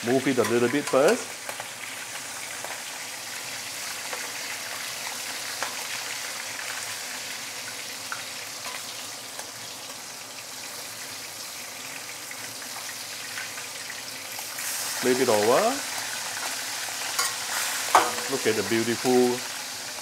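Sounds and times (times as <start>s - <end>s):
fish sizzling in hot oil: 0.0s - 20.0s.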